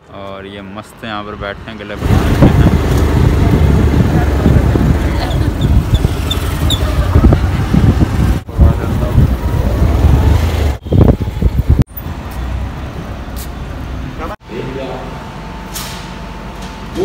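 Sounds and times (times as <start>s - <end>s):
wind rumbling on microphone: 2.0s - 11.9s.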